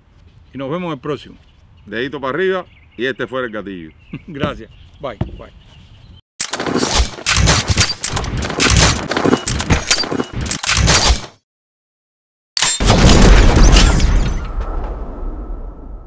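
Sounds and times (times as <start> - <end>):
rapid gunshots: 6.5 - 11.4
deep boom with long rumble: 14.3 - 16.0.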